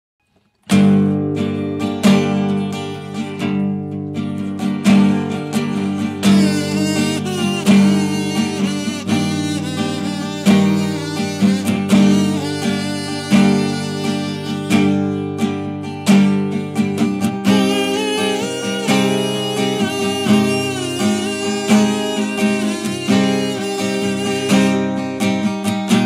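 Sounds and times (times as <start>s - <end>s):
acoustic guitar strumming: 0.4s - 26.0s
kazoo buzzing a melody: 5.6s - 15.8s, 16.9s - 26.0s.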